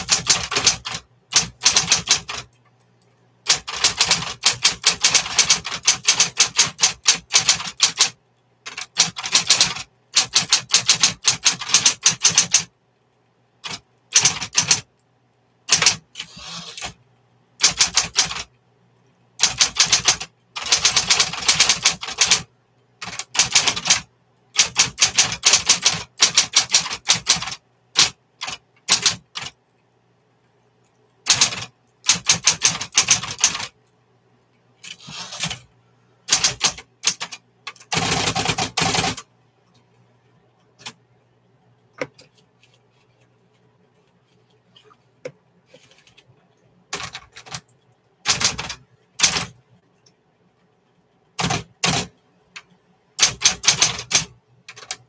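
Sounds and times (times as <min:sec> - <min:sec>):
electric typewriter typing: 0:00.0 - 0:02.6, 0:03.4 - 0:12.7, 0:13.6 - 0:14.9, 0:15.7 - 0:17.0, 0:17.6 - 0:18.5, 0:19.4 - 0:29.6, 0:31.2 - 0:33.8, 0:34.8 - 0:35.7, 0:36.3 - 0:39.3, 0:46.9 - 0:49.6, 0:51.4 - 0:55.0.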